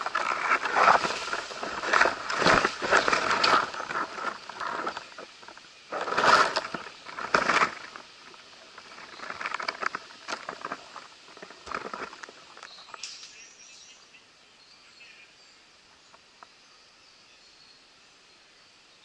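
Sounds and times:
leaves and twigs rustling: 0.0 - 14.0.

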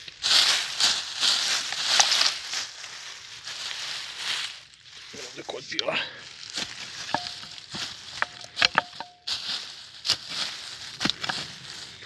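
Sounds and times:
leaves rustling: 0.0 - 12.0
pick striking soil: 6.6 - 11.6.

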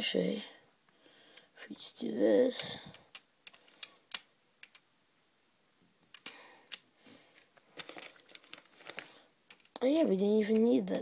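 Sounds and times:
plastic bricks clicking: 2.9 - 4.9, 6.1 - 10.8.

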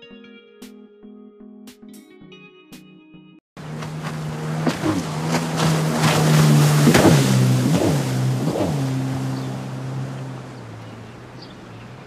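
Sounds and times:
boat engine running: 3.6 - 12.0
water rushing: 3.6 - 12.0
wind noise: 3.6 - 12.0.

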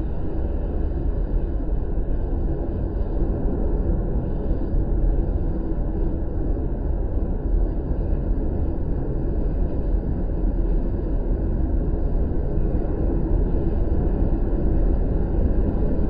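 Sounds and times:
wind rumbling: 0.0 - 16.0.

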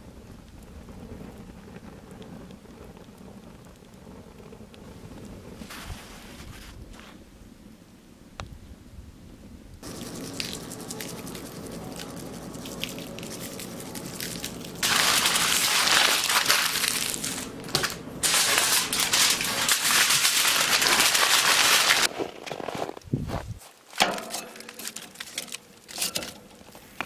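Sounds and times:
foil bag crinkling: 9.8 - 27.0.

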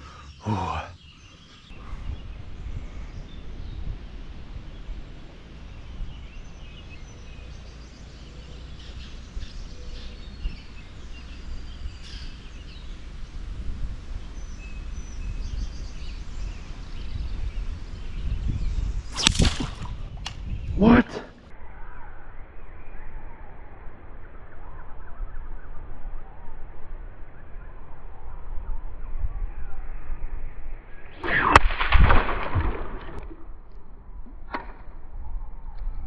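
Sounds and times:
birds chirping: 0.0 - 31.1
low rumble of water or wind: 1.8 - 20.9.

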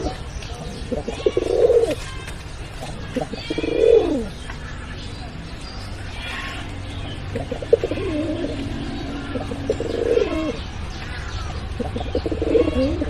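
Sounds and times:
pigeon cooing: 0.0 - 2.0, 2.8 - 4.3, 7.2 - 10.6, 11.7 - 13.0.

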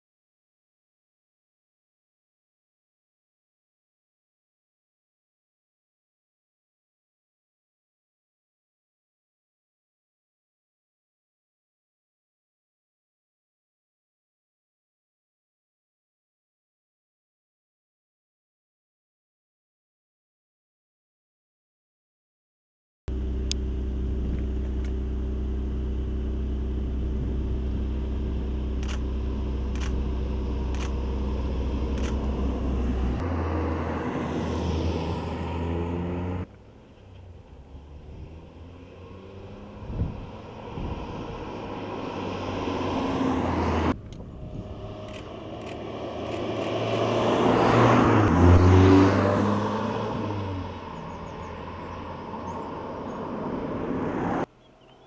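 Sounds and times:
car engine revving and passing: 23.1 - 54.5.

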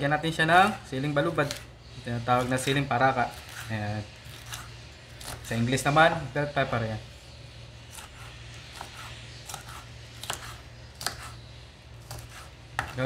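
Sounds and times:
steady low hum: 0.0 - 13.0
knife tapping cutting board: 12.1 - 13.0.

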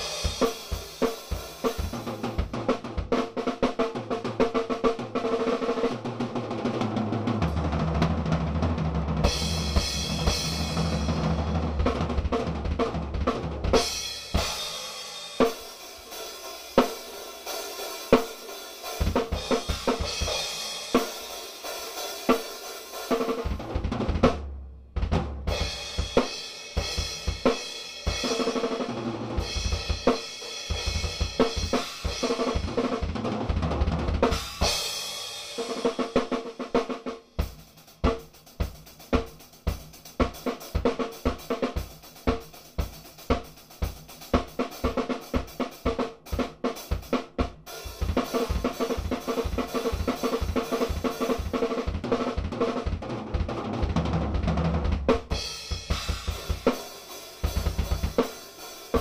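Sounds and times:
snare and tom fills: 0.0 - 59.0
bass drum strokes: 23.5 - 26.1.

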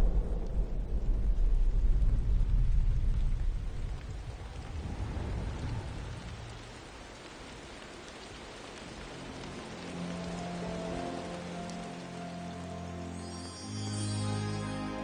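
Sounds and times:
deep rolling thunder: 0.0 - 6.9
rain hiss: 0.0 - 15.0
sustained music tones: 9.0 - 15.0.

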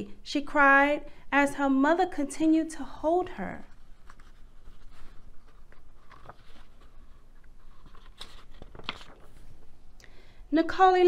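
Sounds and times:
book pages turning: 3.7 - 9.7.

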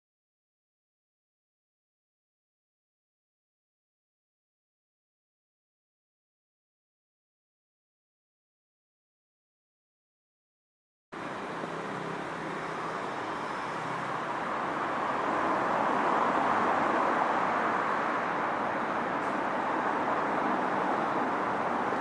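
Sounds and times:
city traffic noise: 11.2 - 22.0.

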